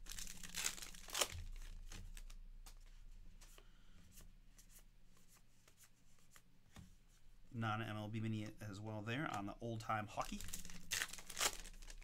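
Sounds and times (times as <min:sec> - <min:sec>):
wrapper tearing open: 0:00.0 - 0:01.8, 0:10.2 - 0:12.0
cards rustling and clicking: 0:00.1 - 0:03.6, 0:10.2 - 0:12.0.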